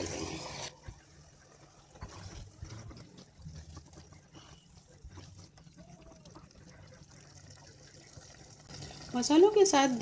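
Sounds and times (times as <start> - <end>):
spatula scraping wet food: 0.0 - 6.7.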